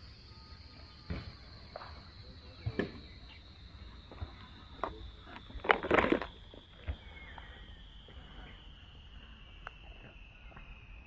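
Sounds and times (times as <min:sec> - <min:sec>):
high-pitched insect chorus: 0:00.0 - 0:11.0
handling clicks and knocks: 0:04.8 - 0:06.3.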